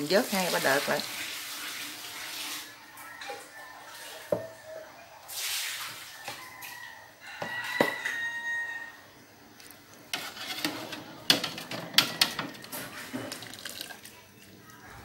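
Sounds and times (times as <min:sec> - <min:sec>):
water splashing and dripping: 0:00.0 - 0:04.3, 0:05.2 - 0:06.4, 0:12.3 - 0:15.0
skimmer scraping metal pot: 0:10.0 - 0:14.0.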